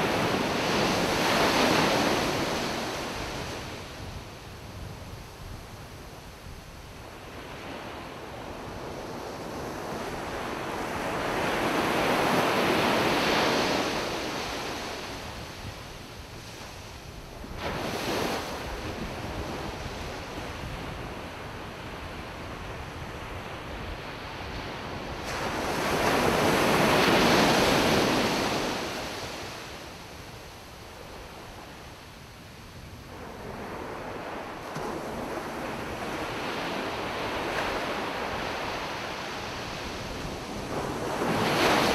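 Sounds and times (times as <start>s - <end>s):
ocean waves breaking on beach: 0.0s - 41.9s.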